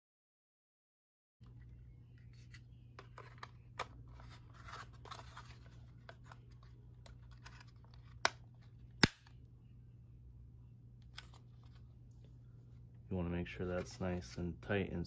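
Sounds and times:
plastic parts scraping and rubbing: 1.4s - 8.8s.

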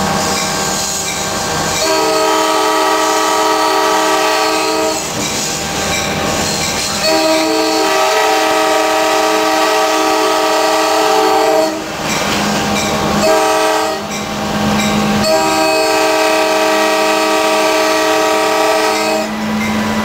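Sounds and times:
locomotive running and rail noise: 0.0s - 20.0s
locomotive air horn blasts: 1.8s - 5.2s, 7.0s - 11.9s, 13.2s - 14.1s, 15.2s - 19.4s.

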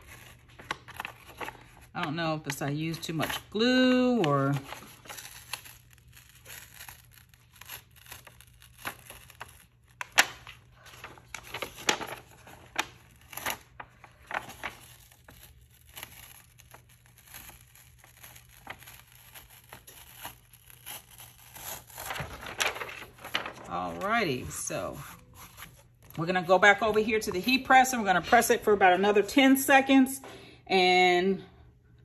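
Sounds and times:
film peeling off fabric crackling: 4.0s - 24.5s.

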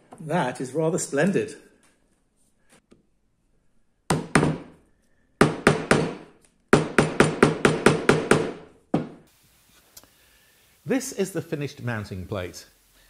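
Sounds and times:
wooden mallet striking chisel: 4.1s - 4.8s, 5.4s - 9.2s.

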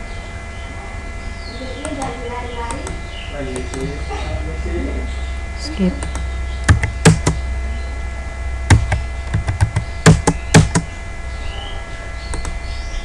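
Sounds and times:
steady low hum: 0.0s - 13.0s
keyboard keys clacking: 6.0s - 7.5s, 8.7s - 10.9s.

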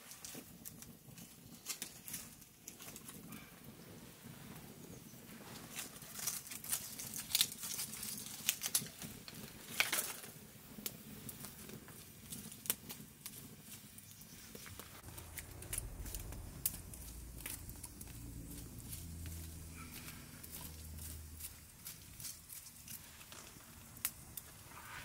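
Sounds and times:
fire crackling and snapping: 0.0s - 25.0s
light rustling of sticks: 5.3s - 25.0s.

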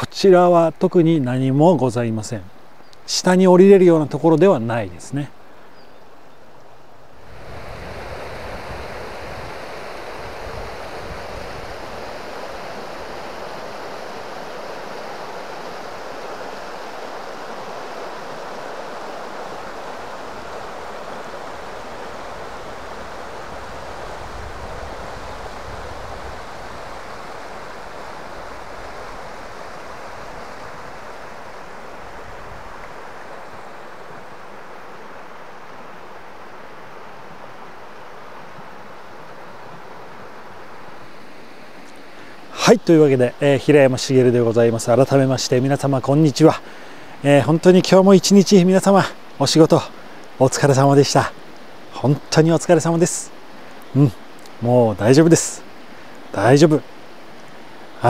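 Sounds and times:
river water rushing over stones: 4.9s - 58.0s
wind rumble on microphone: 7.2s - 13.9s, 20.3s - 34.3s.

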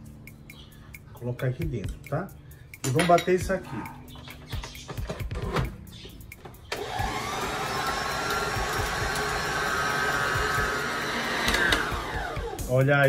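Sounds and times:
stand mixer motor whining: 6.7s - 12.6s.

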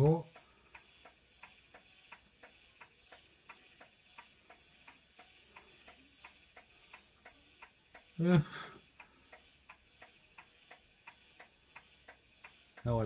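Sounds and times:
man talking: 0.0s - 0.3s
clock ticking rapidly: 0.0s - 13.0s.

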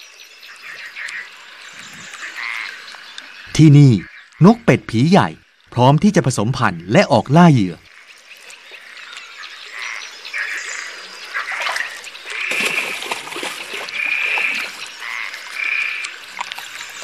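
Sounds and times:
frogs croaking: 0.0s - 17.0s
faint water splashing: 7.8s - 17.0s.

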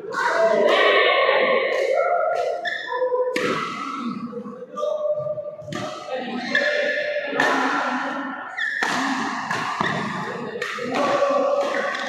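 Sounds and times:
rackets hitting shuttlecock: 1.7s - 4.0s, 5.2s - 12.0s.

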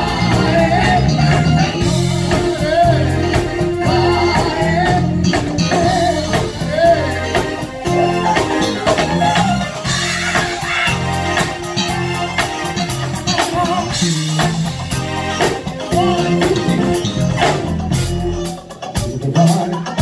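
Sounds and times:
person singing: 0.0s - 14.6s
live band upbeat groove: 0.0s - 20.0s.

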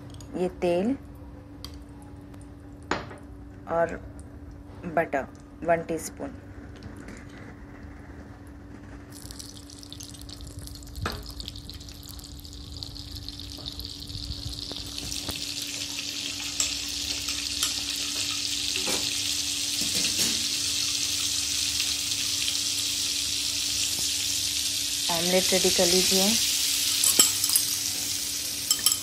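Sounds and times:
butter sizzling on hot pan: 9.1s - 29.0s.

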